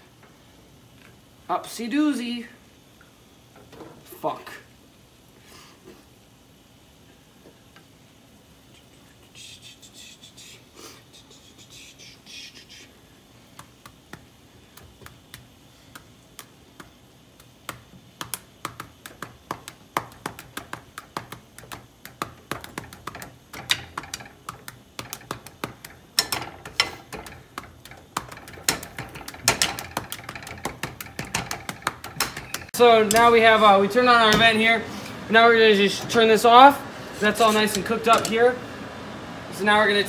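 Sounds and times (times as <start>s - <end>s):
corn kernels popping in pan: 13.5s - 33.4s.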